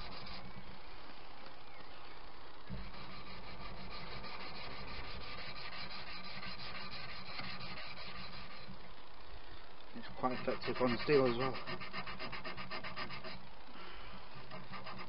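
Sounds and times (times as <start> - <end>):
sanding mesh rubbing on steel: 0.0 - 0.4, 2.8 - 8.7, 10.1 - 13.4, 14.4 - 15.0.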